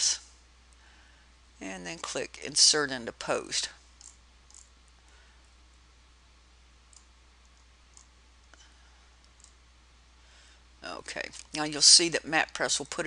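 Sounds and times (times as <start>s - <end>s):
steady low hum: 0.0s - 13.0s
computer mouse clicks: 4.0s - 4.7s, 6.9s - 8.6s, 9.2s - 9.6s.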